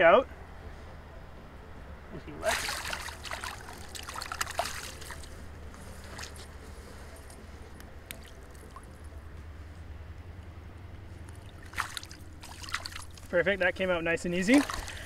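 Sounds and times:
water splashing and trickling: 2.4 - 7.2, 8.1 - 9.2, 11.0 - 15.0.

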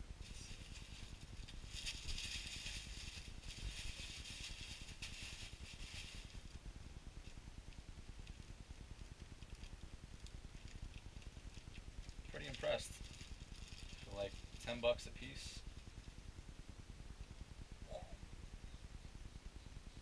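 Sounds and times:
plastic bag crinkling: 0.2 - 6.5, 9.4 - 14.9
tissue paper rustling and crackling: 0.2 - 6.6, 10.6 - 15.0.

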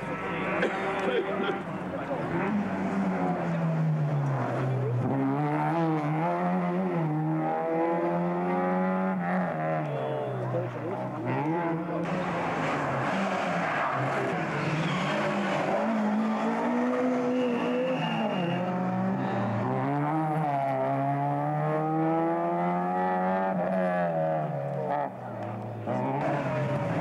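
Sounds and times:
rally car engines revving: 0.0 - 27.0
tyre squeal: 13.4 - 18.8.

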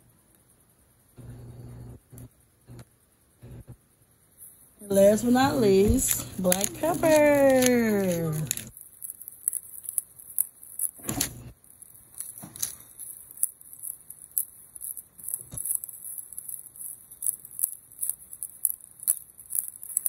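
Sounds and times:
pepper shaker rattling: 4.8 - 20.0.

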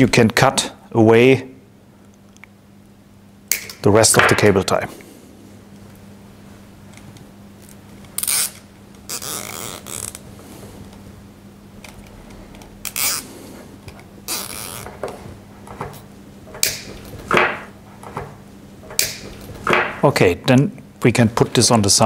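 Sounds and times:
cable ties zipping: 7.6 - 10.2, 12.8 - 13.4, 14.3 - 15.0
side cutters snipping: 16.6 - 17.7, 18.9 - 20.0.

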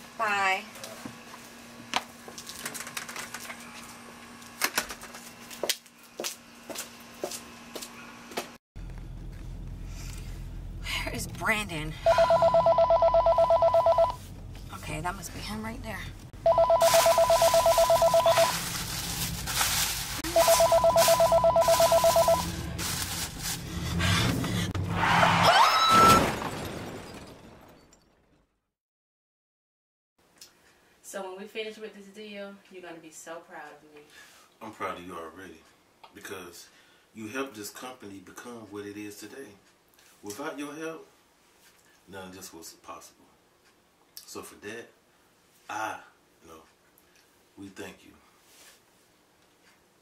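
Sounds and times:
footsteps on porch: 4.9 - 10.2
phone ringing with warbling trill: 12.0 - 14.2, 16.4 - 18.6, 20.2 - 22.6.

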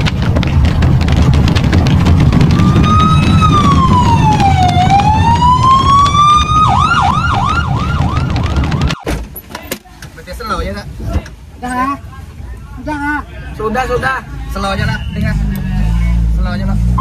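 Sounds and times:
loud low rumble with clicks: 0.0 - 9.0
electronic siren wailing and yelping: 2.6 - 9.0.

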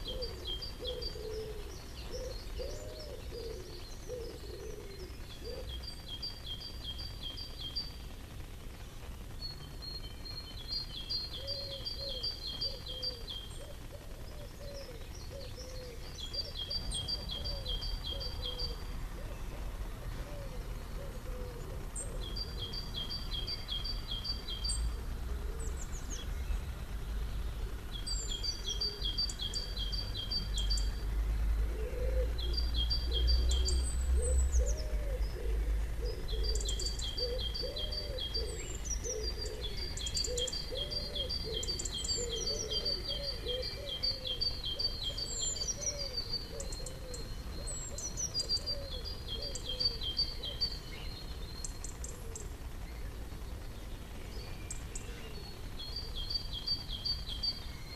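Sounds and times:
pigeon cooing: 0.0 - 5.7, 11.4 - 22.8, 25.2 - 25.8, 31.7 - 50.6.

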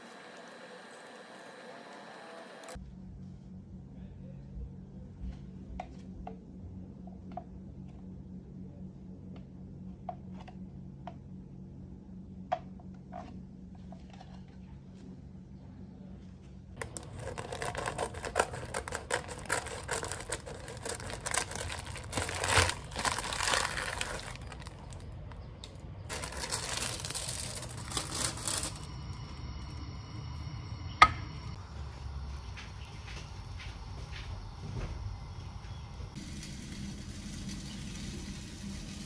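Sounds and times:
faint steady hum: 0.0 - 39.0
plastic packet crinkling: 16.8 - 29.0.

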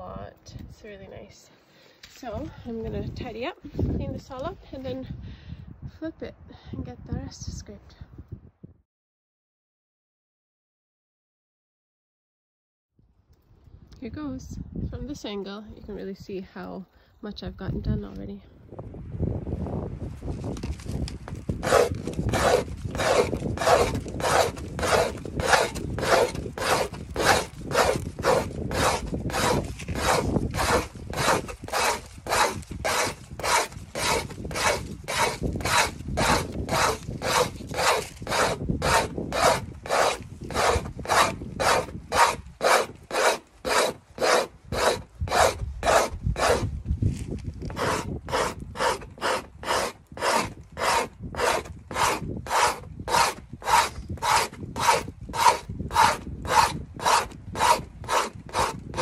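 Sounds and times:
scraper scraping frozen hide: 20.4 - 59.0.

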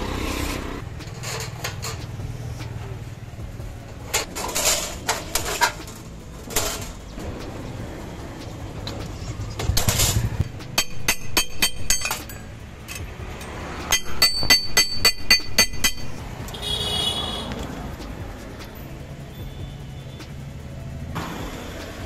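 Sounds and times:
metal scraping rasp: 0.0 - 3.1, 4.0 - 7.8
hammer striking sheet metal: 4.1 - 17.4.

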